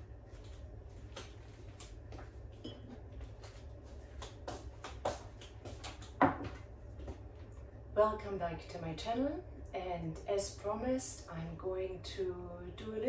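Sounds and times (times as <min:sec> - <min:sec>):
low steady hum: 0:00.0 - 0:13.0
taps and clicks in kitchen: 0:01.1 - 0:07.3.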